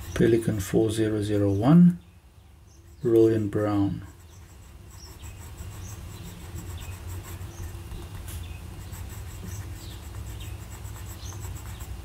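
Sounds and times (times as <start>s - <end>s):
fountain pen scratching on paper: 2.8s - 12.0s.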